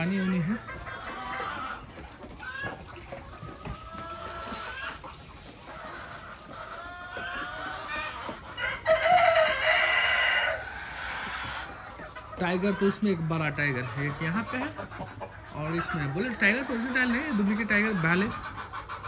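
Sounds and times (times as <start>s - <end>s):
chickens clucking: 0.0s - 19.0s
rooster crowing: 8.6s - 10.6s.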